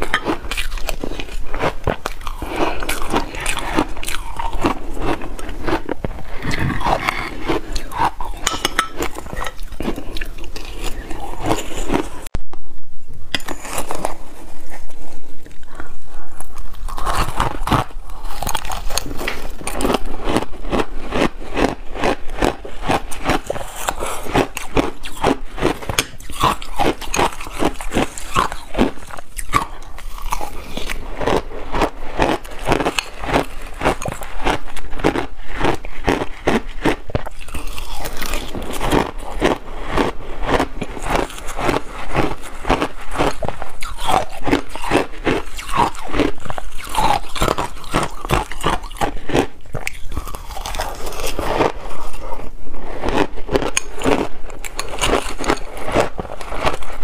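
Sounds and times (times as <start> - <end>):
metal spoon scraping glass bowl: 0.0 - 1.4, 6.4 - 12.1, 13.3 - 14.2
crunching and chewing ice: 0.0 - 12.3, 13.4 - 57.0.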